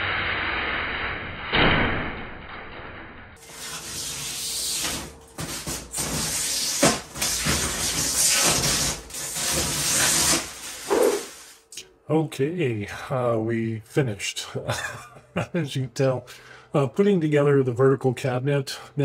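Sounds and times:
plastic panel rustling and scraping: 3.4 - 11.4.

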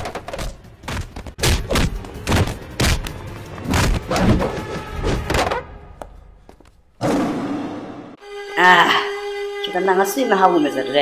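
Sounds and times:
heavy punches and body thuds: 0.4 - 5.6
dramatic background music: 0.5 - 6.4.

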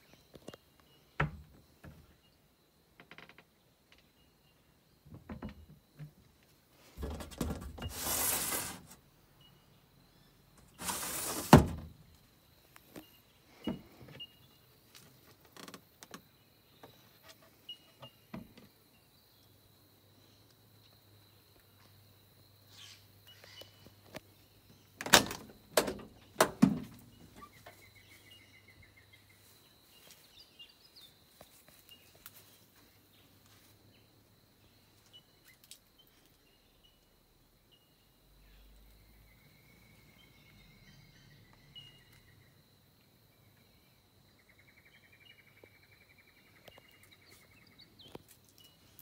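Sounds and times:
cabinet door thumping shut: 11.3 - 11.9.

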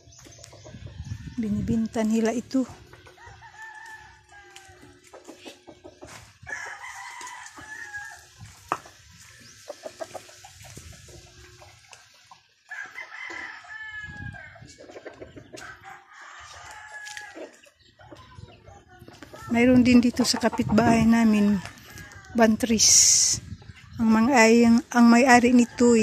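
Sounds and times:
rooster crowing: 6.5 - 8.3, 12.7 - 14.6, 15.6 - 17.5.

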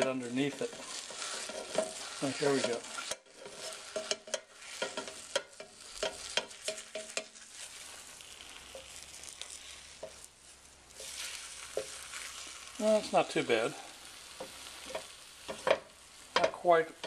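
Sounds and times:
batter sizzling: 0.0 - 17.0
spatula scraping pan: 0.0 - 17.0.

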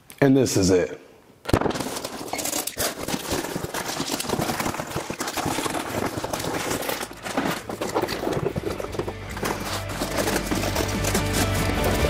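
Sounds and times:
cardboard and plastic rustling: 1.5 - 12.0.

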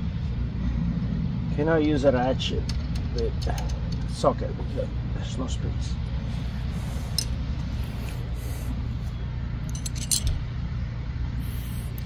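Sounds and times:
metallic clinks of wrench: 9.7 - 10.4.

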